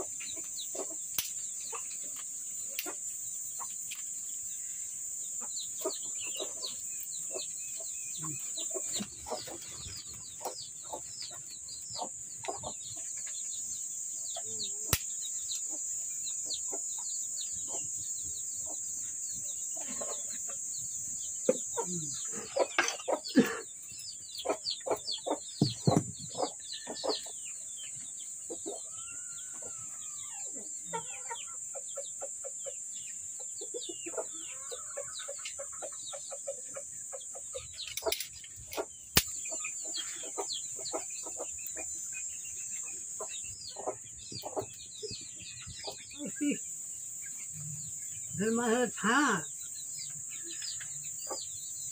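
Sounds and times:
chickens clucking and chirping: 0:00.0 - 0:51.9
twigs cracking in fire: 0:01.1 - 0:01.5, 0:14.9 - 0:15.2, 0:39.1 - 0:39.3.

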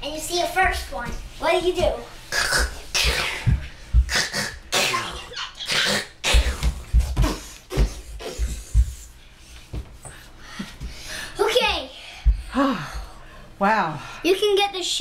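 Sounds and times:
boy making mouth gun sounds: 0:02.3 - 0:09.0
body thumping on wooden floor: 0:06.3 - 0:09.1.

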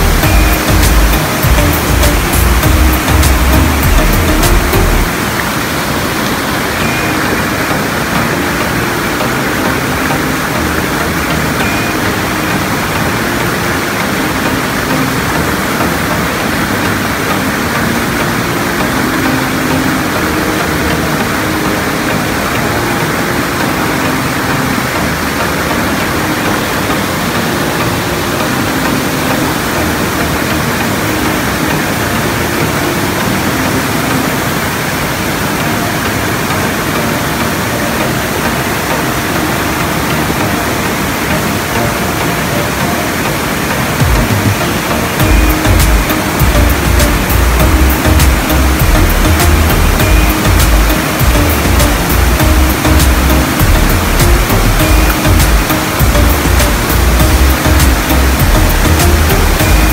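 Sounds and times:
stream rushing over boulders: 0:00.0 - 0:59.9.

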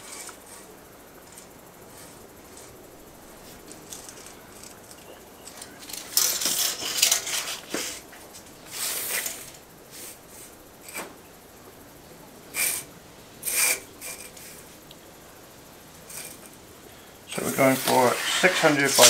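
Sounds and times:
tape measure scraping on stone: 0:17.6 - 0:19.0.

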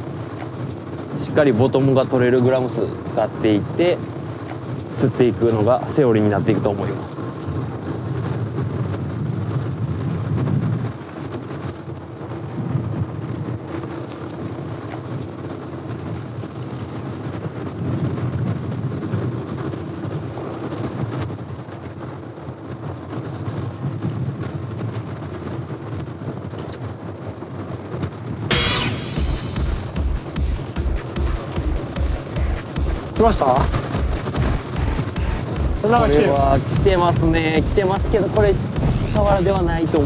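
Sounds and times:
wind noise: 0:00.0 - 0:28.7, 0:31.4 - 0:40.0
boat engine rumbling: 0:29.2 - 0:40.0.

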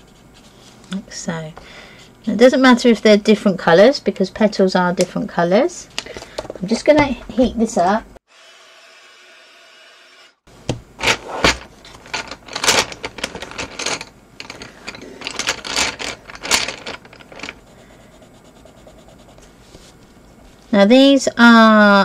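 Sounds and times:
pencils clattering in pencil case: 0:11.0 - 0:17.6.

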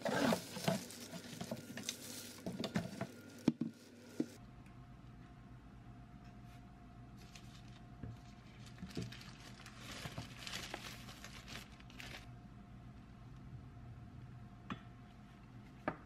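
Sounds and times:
plastic packaging crinkling: 0:00.0 - 0:04.2, 0:07.2 - 0:12.3
faint steady hum: 0:00.0 - 0:16.0.

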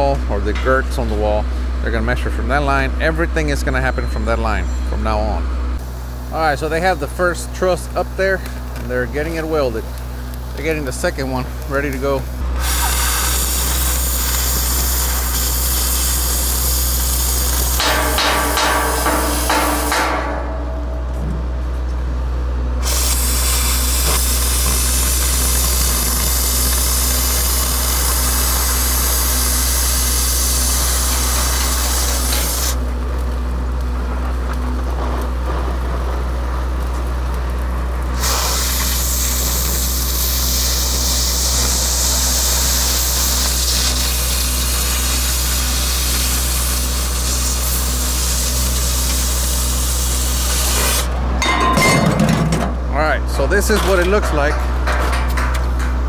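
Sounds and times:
steady low hum: 0:00.0 - 0:56.0
cutting torch hissing: 0:05.8 - 0:20.3, 0:22.8 - 0:33.3, 0:35.7 - 0:51.2.

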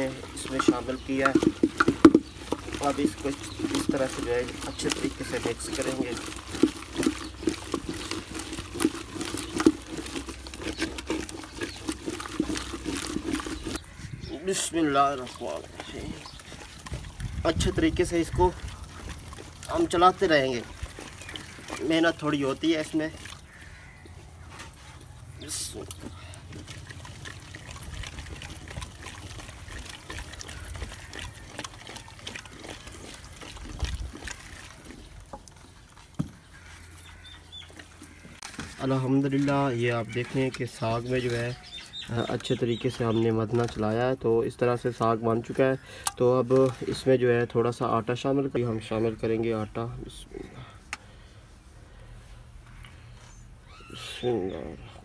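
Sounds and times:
wooden masher mashing greens: 0:00.0 - 0:48.0.

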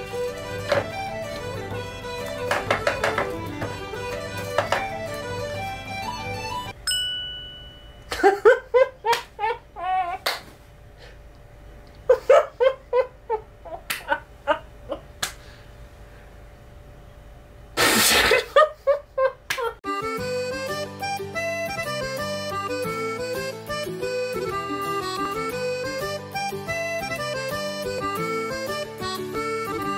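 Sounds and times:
short chime: 0:06.8 - 0:08.1
burst of hiss: 0:17.8 - 0:18.5.

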